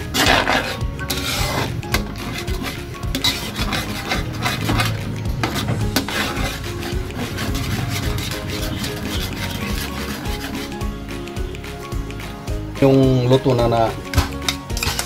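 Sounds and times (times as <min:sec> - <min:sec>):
metal spatula scraping a wok: 0:00.0 - 0:11.0, 0:14.0 - 0:15.0.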